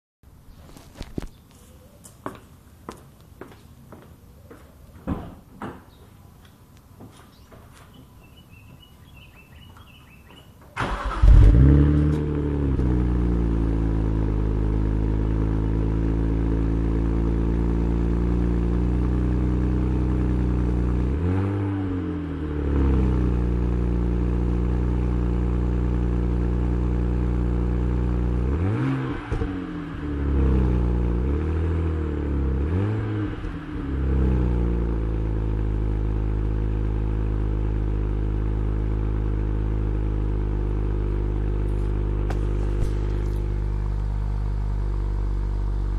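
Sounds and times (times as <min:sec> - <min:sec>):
car engine starting and idling: 0:08.0 - 0:45.9.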